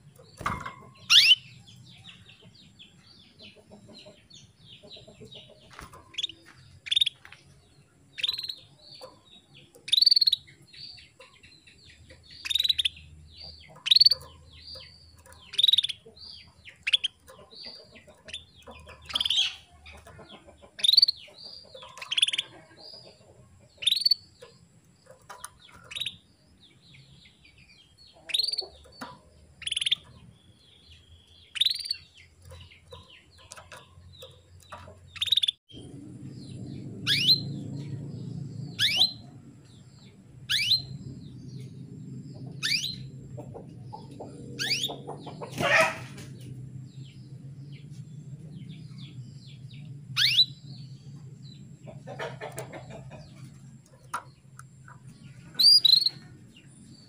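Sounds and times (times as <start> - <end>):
faint bird twittering: 0.0 - 7.3, 8.0 - 23.2, 35.2 - 45.9, 47.0 - 57.0
canary call notes: 1.1 - 1.4.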